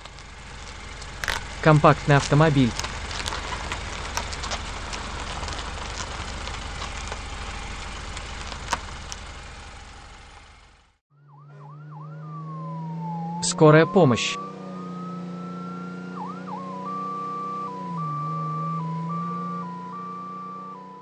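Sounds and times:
car engine rumbling: 0.0 - 21.0
ambulance siren whooping and wailing: 11.1 - 21.0.

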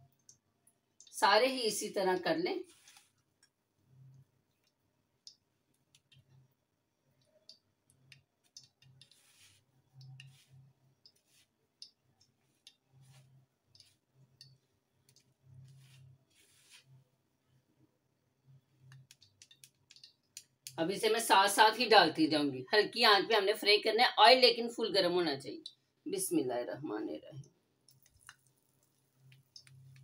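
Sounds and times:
bread crumbs rustling: 2.6 - 3.2, 8.4 - 14.3, 15.3 - 17.0.

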